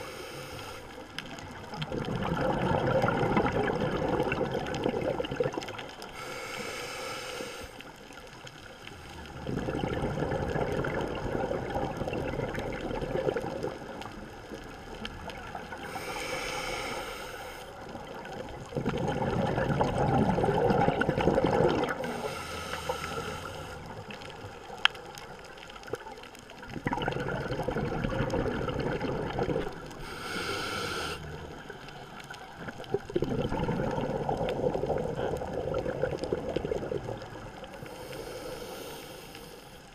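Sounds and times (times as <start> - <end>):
regulator hissing inhales: 0.0 - 1.0, 6.1 - 7.9, 15.8 - 17.8, 22.0 - 23.9, 30.0 - 31.4, 37.8 - 39.9
exhaled bubbles gurgling: 0.8 - 6.8, 7.8 - 39.6.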